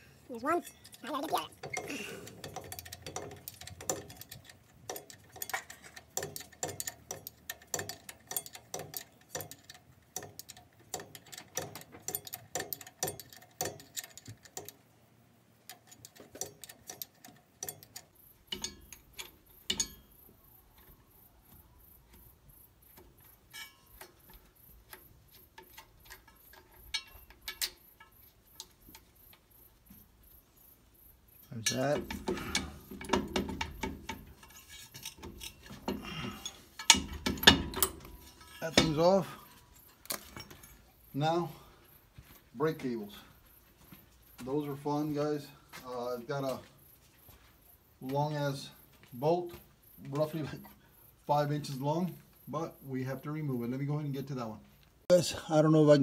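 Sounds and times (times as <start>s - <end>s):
wrench clicking on metal: 0.6s - 14.8s, 15.6s - 21.0s, 22.2s - 29.5s, 31.4s - 40.5s.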